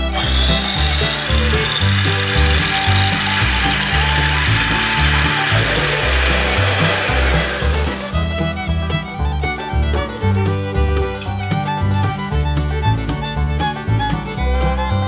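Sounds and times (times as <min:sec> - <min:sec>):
background music with bass line: 0:00.0 - 0:15.0
mechanical rattling: 0:00.1 - 0:08.2.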